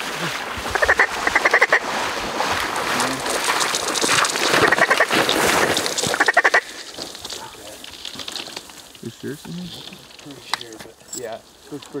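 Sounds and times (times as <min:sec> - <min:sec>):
duck quacking: 0:00.7 - 0:01.8, 0:04.6 - 0:05.1, 0:06.2 - 0:06.7.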